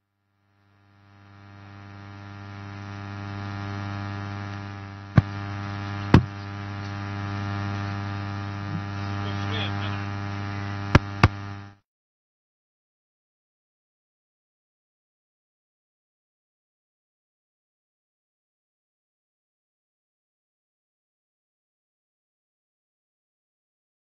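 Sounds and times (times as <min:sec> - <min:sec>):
electrical mains hum: 0:00.3 - 0:11.8.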